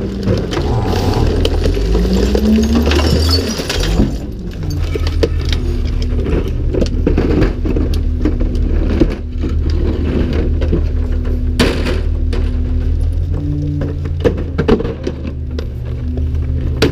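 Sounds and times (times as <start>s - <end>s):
wheeled cart rattling on pavement: 0.0s - 11.3s
garbage truck engine humming: 0.0s - 16.9s.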